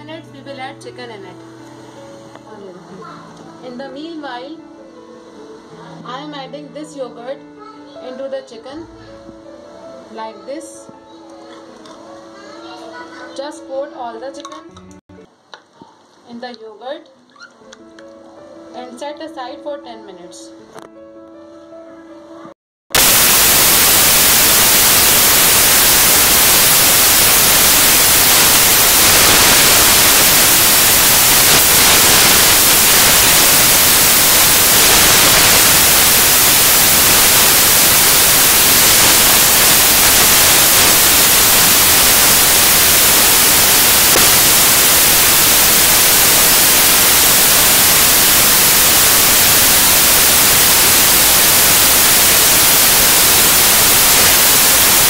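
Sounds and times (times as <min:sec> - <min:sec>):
static hiss: 0:22.9 - 0:55.0.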